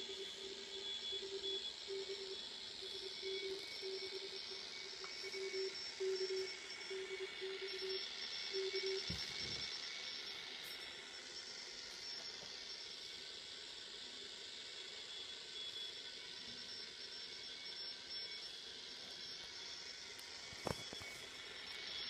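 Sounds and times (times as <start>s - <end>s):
receiver hiss: 0.0s - 13.2s, 18.4s - 22.0s.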